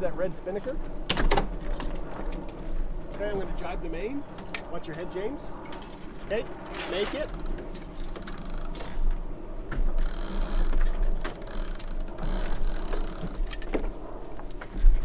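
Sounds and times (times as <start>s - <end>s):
ratchet blocks clicking: 6.6s - 8.9s, 10.0s - 13.7s.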